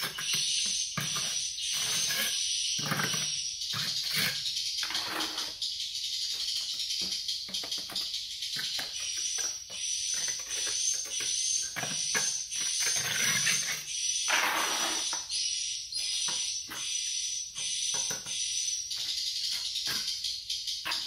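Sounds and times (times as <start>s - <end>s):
high-pitched chirring: 0.0s - 21.0s
scraper scraping concrete floor: 1.0s - 5.6s, 11.7s - 15.2s.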